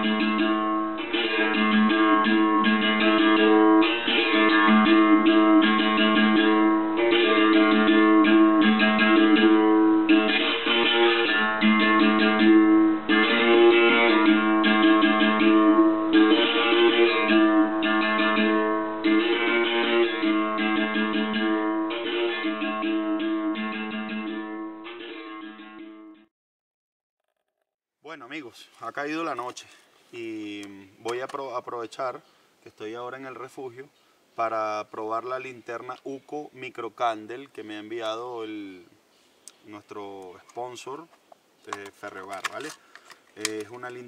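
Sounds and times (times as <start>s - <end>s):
acoustic guitar strumming chords: 0.0s - 26.3s.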